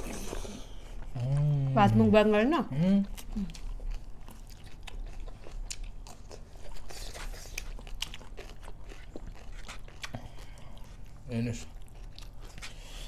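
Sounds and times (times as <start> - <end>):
person chewing crunchy food: 2.8 - 13.0.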